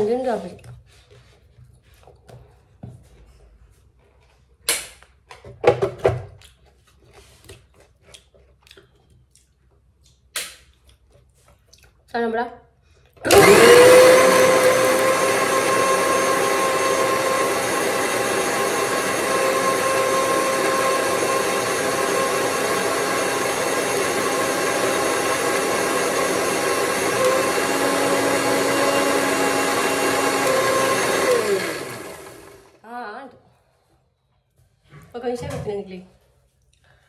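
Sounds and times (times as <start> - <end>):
mixer grinder motor whine: 13.2 - 32.8.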